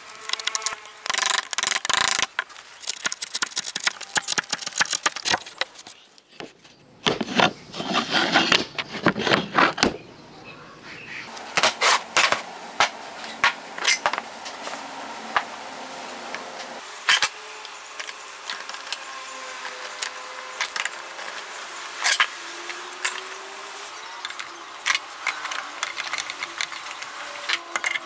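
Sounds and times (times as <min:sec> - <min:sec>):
wooden boards knocking and rubbing: 0:06.4 - 0:10.0.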